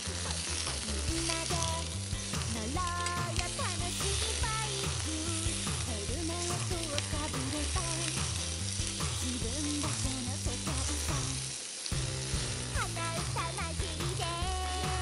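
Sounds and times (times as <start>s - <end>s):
background music with bass: 0.0s - 15.0s
meat sizzling in a frying pan: 0.0s - 15.0s.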